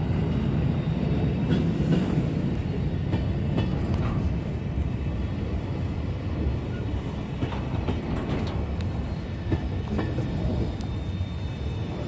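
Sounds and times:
train wagons rumbling: 0:00.0 - 0:12.0
wheels clanking on rails: 0:01.3 - 0:04.6, 0:06.4 - 0:12.0.

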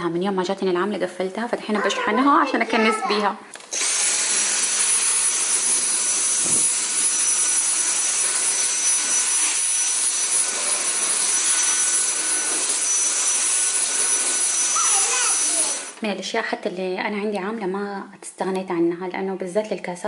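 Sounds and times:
vacuum cleaner running with whine: 0:03.7 - 0:16.0.

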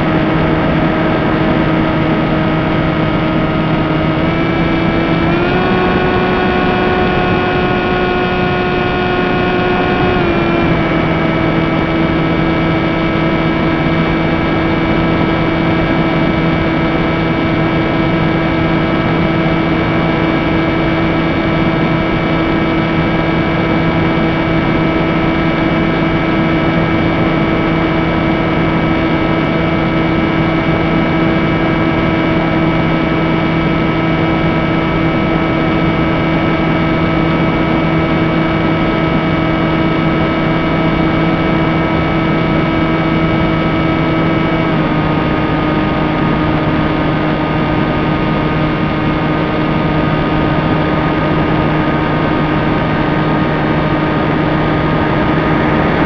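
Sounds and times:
electric motor and propeller whine: 0:00.0 - 0:56.0
wind rush: 0:49.5 - 0:56.0.

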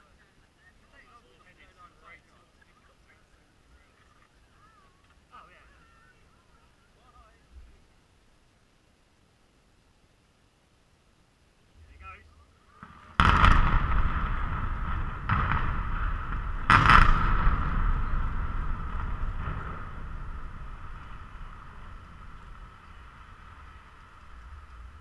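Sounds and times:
explosive blasts: 0:12.7 - 0:25.0
deep rumble of towers collapsing: 0:12.8 - 0:25.0.

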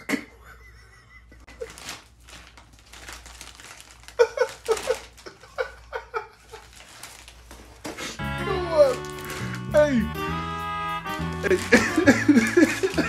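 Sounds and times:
person laughing: 0:00.0 - 0:02.0, 0:04.1 - 0:06.8, 0:11.2 - 0:13.0
plastic bag crinkling: 0:01.5 - 0:09.9, 0:11.1 - 0:13.0.

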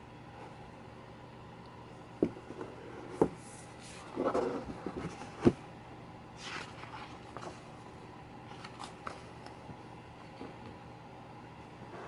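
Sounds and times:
faint steady hum: 0:00.0 - 0:12.0
page turning swish: 0:06.4 - 0:07.5
paper pages rustling: 0:06.4 - 0:07.7, 0:08.5 - 0:09.5.

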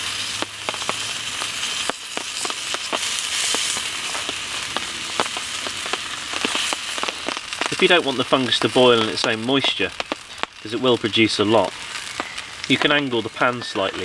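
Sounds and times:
fungus sizzling in a pan: 0:00.0 - 0:14.0
sharp pops and crackles: 0:00.0 - 0:14.0.

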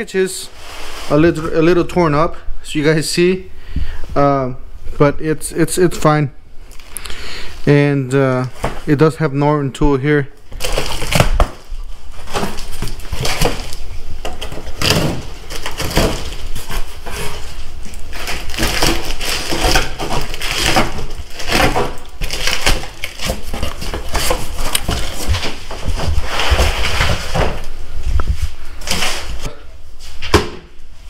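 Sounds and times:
cardboard crackling and tearing: 0:10.5 - 0:27.6.

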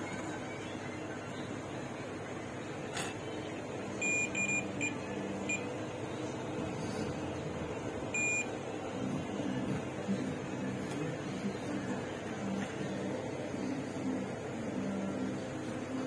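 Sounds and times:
multimeter continuity beeps: 0:04.0 - 0:05.7, 0:08.1 - 0:08.6.

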